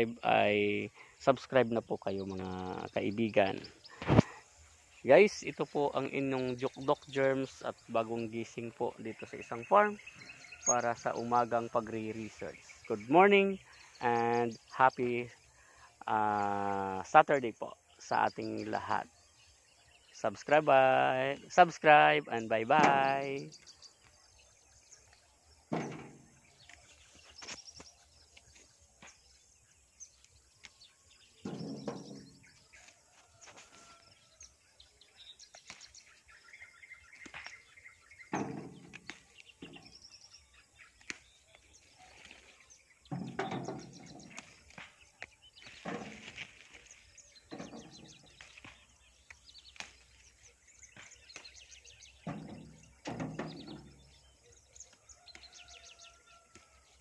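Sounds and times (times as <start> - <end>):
plant stems rustling: 31.5 - 34.1, 40.8 - 54.1.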